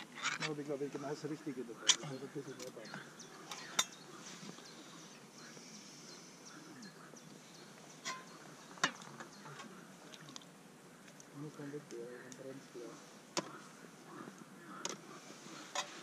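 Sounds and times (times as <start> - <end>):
faint frog chorus: 0.0 - 16.0.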